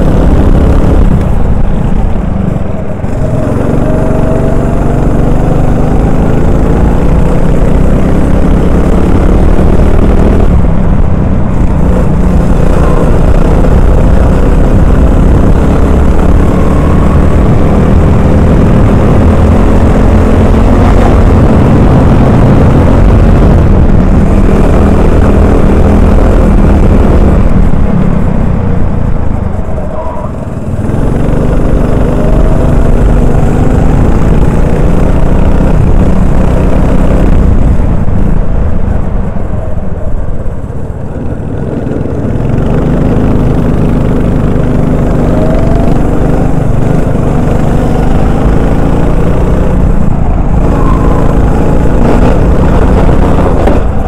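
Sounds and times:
kart engine at racing revs: 0:00.0 - 0:38.1, 0:40.9 - 0:54.0.

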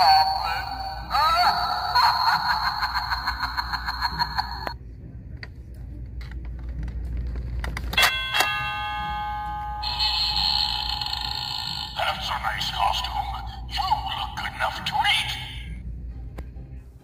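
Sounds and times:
electronic doorbell chime: 0:08.0 - 0:12.2.

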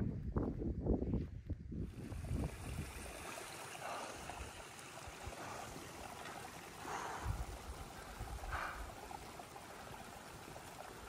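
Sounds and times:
wind on microphone: 0:00.0 - 0:05.9, 0:06.9 - 0:09.2
mountain stream rushing: 0:02.0 - 0:11.0.

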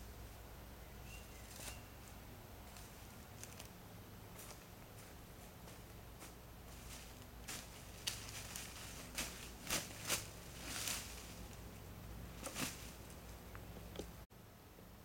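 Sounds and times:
steady low hum: 0:00.0 - 0:15.0
footsteps crunching in dry leaves: 0:01.3 - 0:03.7, 0:04.3 - 0:13.3
body dropping onto leaves: 0:06.7 - 0:11.6, 0:12.4 - 0:13.1.

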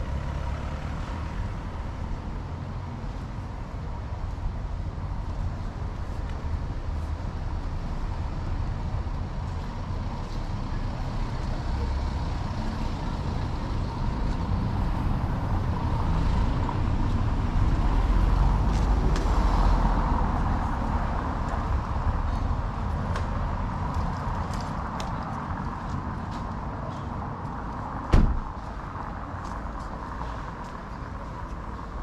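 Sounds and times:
vehicle engine rumble: 0:00.0 - 0:32.0.

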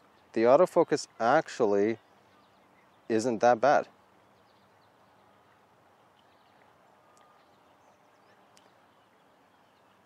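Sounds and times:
outdoor background hiss: 0:00.0 - 0:10.0
faint high chirps: 0:04.2 - 0:10.0
faint ticks: 0:06.2 - 0:07.5, 0:08.5 - 0:08.8.

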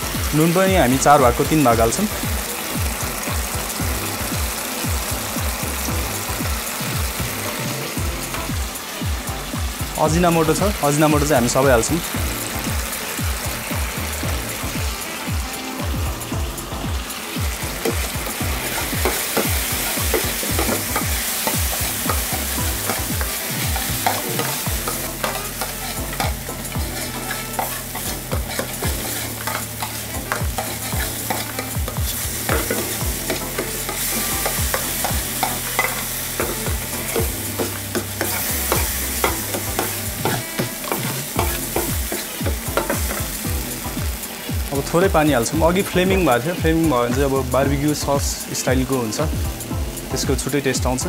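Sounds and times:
sauce sizzling: 0:00.0 - 0:51.0
ladle scraping a frying pan: 0:17.8 - 0:43.2.

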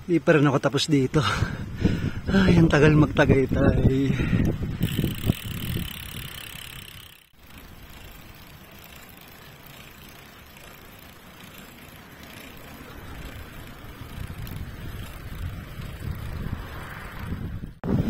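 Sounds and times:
bicycle tyre noise on road: 0:01.2 - 0:18.0
wind rushing: 0:01.4 - 0:07.2, 0:12.9 - 0:18.0.

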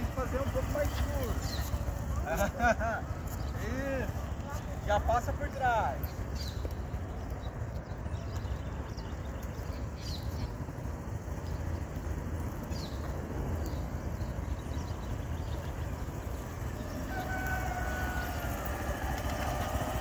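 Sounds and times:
birds chirping: 0:00.0 - 0:20.0
small motorcycle engine running: 0:00.0 - 0:20.0
rooster crowing: 0:16.9 - 0:19.2.

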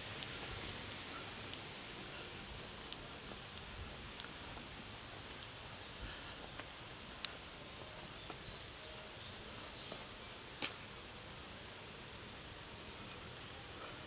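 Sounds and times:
insects droning: 0:00.0 - 0:14.0
faint sharp clicks: 0:02.9 - 0:04.4.

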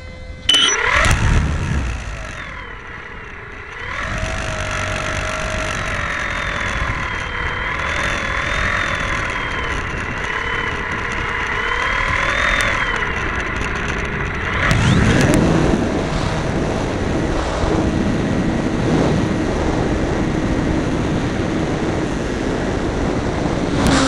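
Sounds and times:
electric motor and propeller whine: 0:00.0 - 0:24.0.

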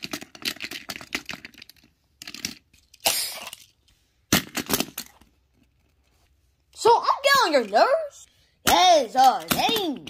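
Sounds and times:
toy cars clicking and knocking: 0:00.0 - 0:06.0, 0:08.7 - 0:10.0.

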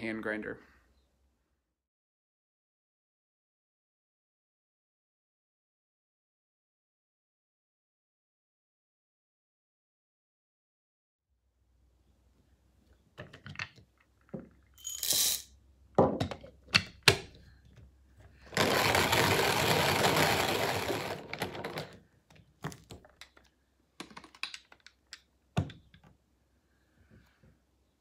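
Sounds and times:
hand-cranked grinding of beans: 0:18.3 - 0:22.0
coffee beans rattling into grinder: 0:18.4 - 0:22.0.

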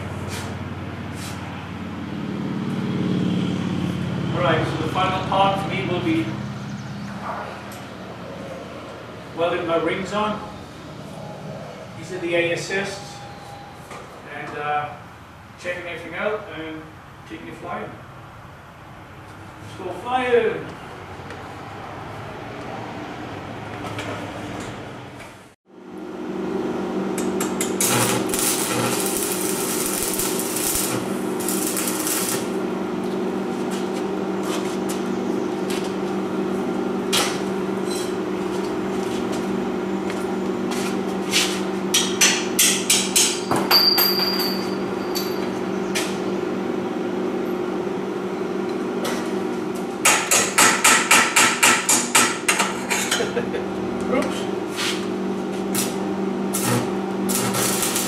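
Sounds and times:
steady low hum: 0:25.7 - 0:43.4, 0:52.5 - 0:58.0.

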